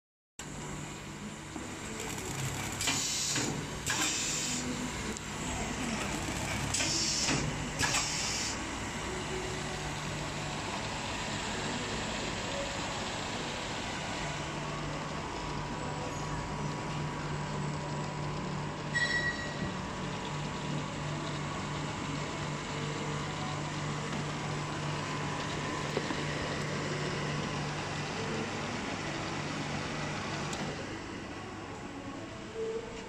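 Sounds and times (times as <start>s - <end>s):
machine humming: 0.4s - 33.0s
machine hissing: 1.7s - 13.6s.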